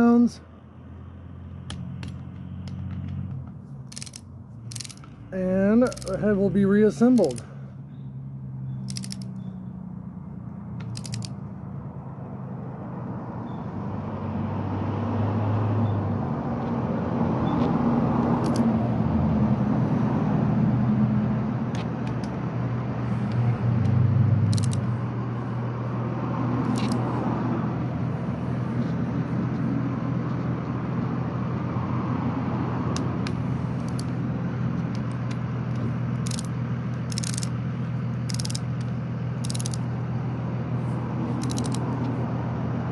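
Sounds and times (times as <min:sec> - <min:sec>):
vehicle engine humming: 0:00.0 - 0:42.9
wrench clicking: 0:03.9 - 0:05.2, 0:05.8 - 0:06.2, 0:07.1 - 0:07.4, 0:08.8 - 0:09.4, 0:10.8 - 0:11.4, 0:18.4 - 0:18.6, 0:24.5 - 0:24.9, 0:26.6 - 0:27.1, 0:33.0 - 0:34.2, 0:34.9 - 0:37.6, 0:38.2 - 0:39.8, 0:41.4 - 0:41.8.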